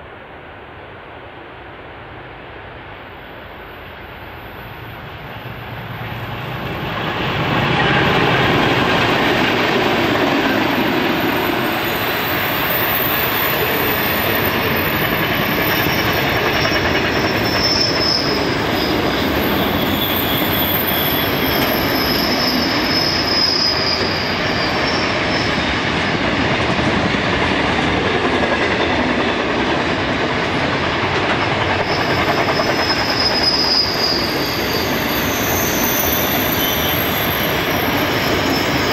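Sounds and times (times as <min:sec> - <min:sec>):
diesel locomotives passing: 0:00.0 - 0:38.9
train wheels rumbling: 0:00.0 - 0:38.9
wheel flanges squealing: 0:10.0 - 0:25.8, 0:31.8 - 0:38.9.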